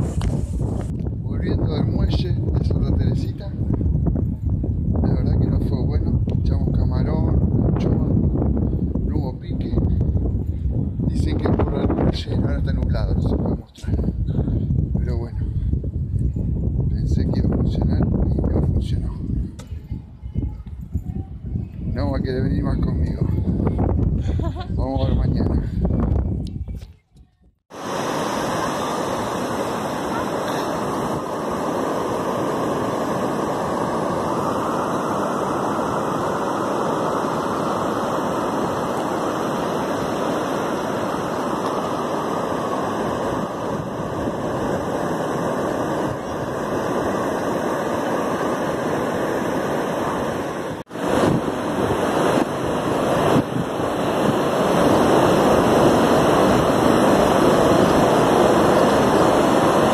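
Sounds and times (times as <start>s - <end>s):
ocean waves breaking: 0.0s - 0.3s, 27.7s - 59.9s.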